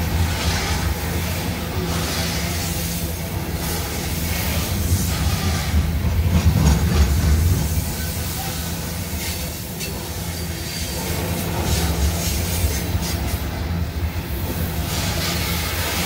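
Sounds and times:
train wheels rumbling on rail: 0:00.0 - 0:16.0
wheels clacking: 0:04.7 - 0:08.0.

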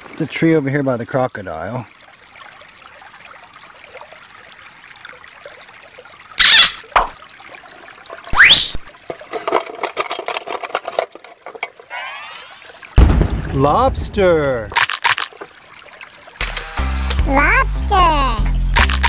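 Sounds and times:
water trickling over rocks: 0:00.0 - 0:17.3
plastic toys clattering in a case: 0:09.0 - 0:12.6.

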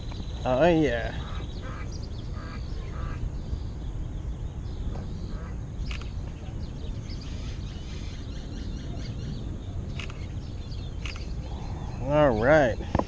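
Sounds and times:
low background rumble: 0:00.0 - 0:13.0
sharp click: 0:09.9 - 0:10.3, 0:11.0 - 0:11.3.

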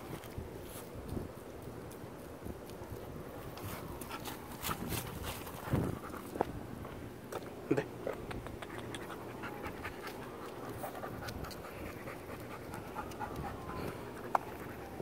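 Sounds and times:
light clicks and scuffs: 0:00.0 - 0:09.1
dog panting: 0:08.6 - 0:15.0.

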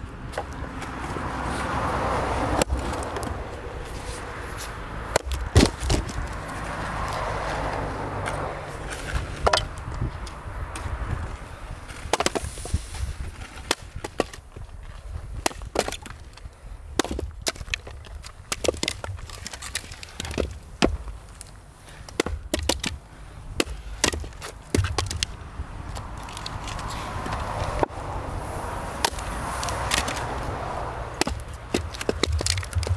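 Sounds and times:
axe splitting firewood: 0:01.8 - 0:04.1, 0:05.0 - 0:10.0, 0:11.8 - 0:27.9, 0:28.8 - 0:32.9
wooden pieces clacking together: 0:05.1 - 0:07.2, 0:08.2 - 0:10.9, 0:13.4 - 0:27.9, 0:29.0 - 0:30.5, 0:31.1 - 0:32.9.

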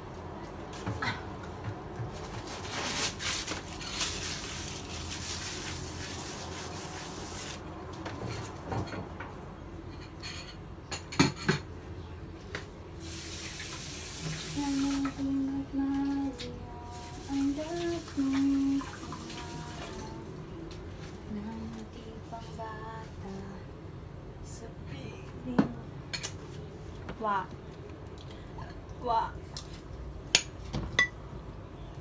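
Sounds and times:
water running from tap: 0:13.0 - 0:15.2, 0:16.9 - 0:20.2.

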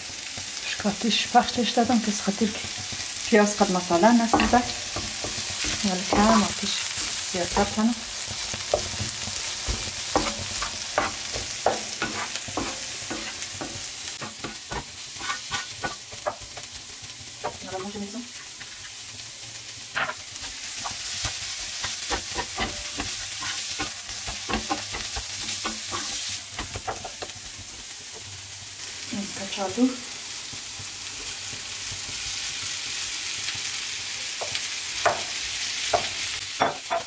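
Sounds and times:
food sizzling in oil: 0:00.0 - 0:37.0
spatula scraping a pan: 0:04.0 - 0:19.1, 0:19.8 - 0:27.7.

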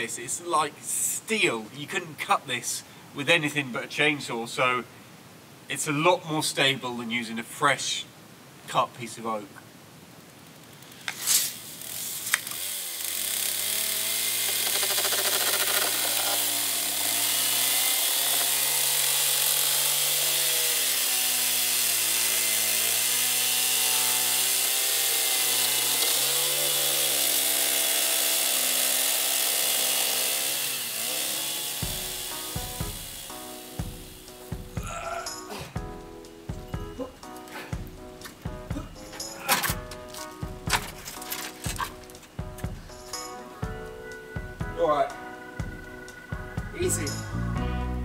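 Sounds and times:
chainsaw cutting wood: 0:11.0 - 0:35.4, 0:37.2 - 0:43.3.

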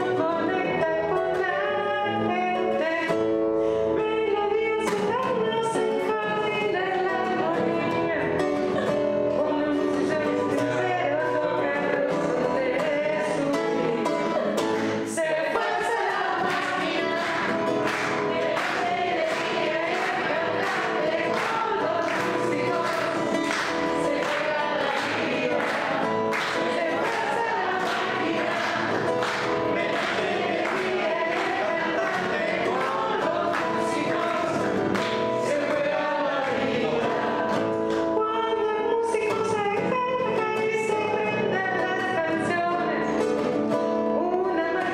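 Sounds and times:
woman singing: 0:00.0 - 0:43.5, 0:44.1 - 0:44.9
strummed acoustic guitar: 0:00.0 - 0:44.9.

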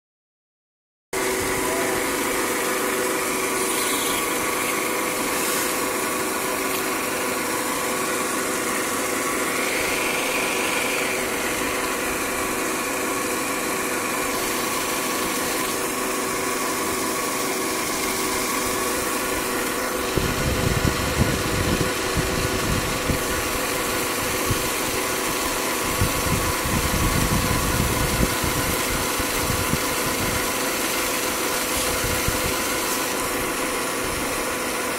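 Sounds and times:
fountain churning water: 0:01.2 - 0:20.2, 0:23.1 - 0:34.9
machine hum with held tones: 0:01.2 - 0:34.9
wind buffeting microphone: 0:20.1 - 0:23.5, 0:25.8 - 0:30.4.

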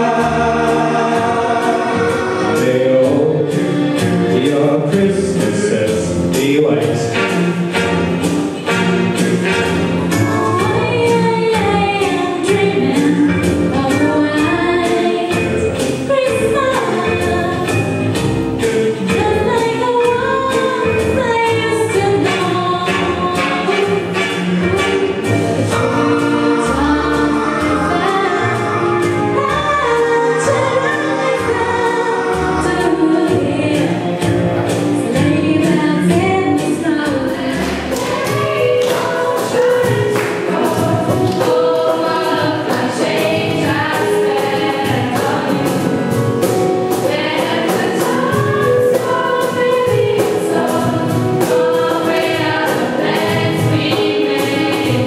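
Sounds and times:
group of voices singing: 0:00.0 - 0:55.0
keyboard: 0:00.0 - 0:55.0
cajon beat: 0:32.7 - 0:55.0.

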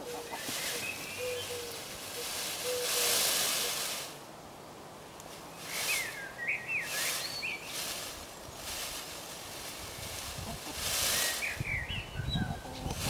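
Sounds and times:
bird chirps: 0:00.0 - 0:03.2, 0:05.6 - 0:07.8, 0:11.1 - 0:12.7
bird calls: 0:00.0 - 0:03.9, 0:05.5 - 0:08.8, 0:09.8 - 0:13.0
peacock feathers rattling: 0:00.0 - 0:04.2, 0:05.3 - 0:11.7.

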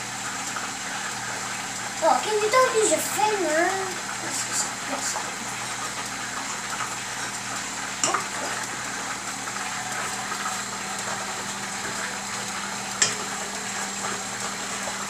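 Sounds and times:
stand mixer motor hum: 0:00.0 - 0:15.0.

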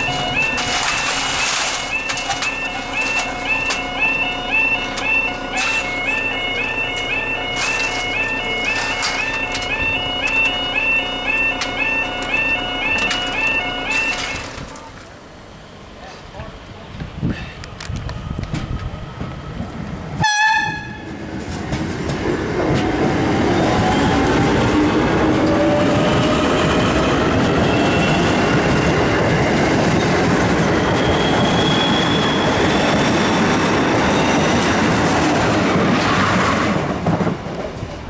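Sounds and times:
brief loud tone: 0:00.0 - 0:14.6
electric traction motor whine: 0:00.0 - 0:14.8
train wheels rumbling on rail: 0:00.0 - 0:38.0.

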